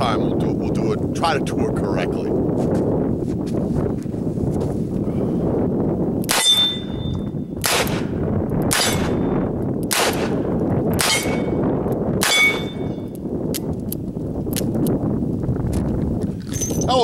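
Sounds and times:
revolver gunshots: 6.3s - 6.9s, 7.6s - 9.3s, 9.9s - 10.4s, 11.0s - 11.6s, 12.2s - 12.8s
steel target plate ringing: 6.3s - 7.4s, 12.2s - 13.1s.

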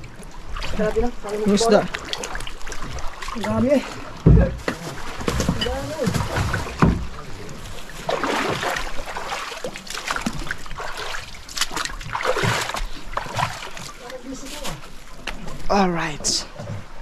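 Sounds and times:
water splashing and sloshing: 0.0s - 17.0s
sharp knocks: 4.2s - 7.2s.

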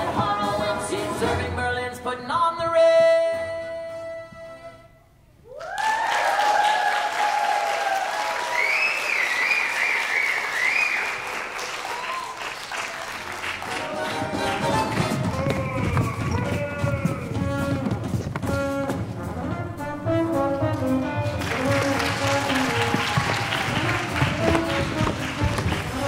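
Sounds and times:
musical backing track: 0.0s - 5.1s, 13.6s - 26.0s
audience applause and cheers: 5.4s - 17.4s, 21.1s - 26.0s.

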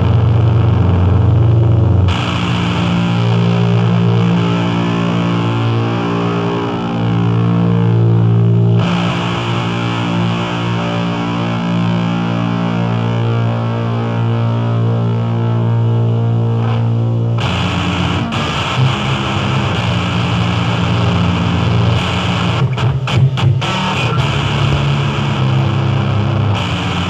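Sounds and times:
distorted noise music drone: 0.0s - 27.0s.

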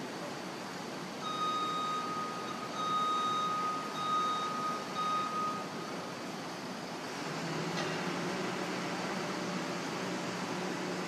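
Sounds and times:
construction site and street noise: 0.0s - 11.0s
machine warning beeper: 1.2s - 6.0s.

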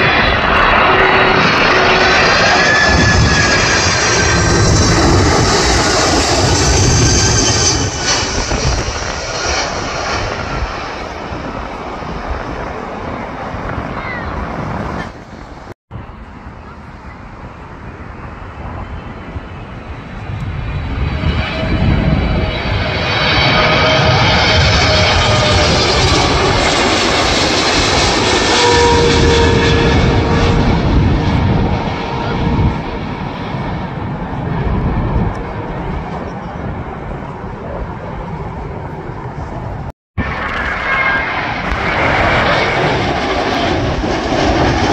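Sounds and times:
jet engine rushing: 0.0s - 44.9s.

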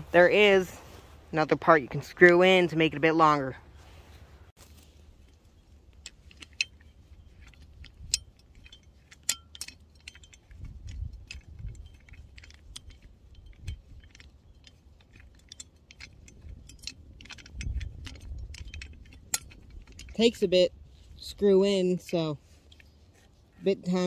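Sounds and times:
metal shovel parts clicking and rattling: 4.6s - 24.0s.

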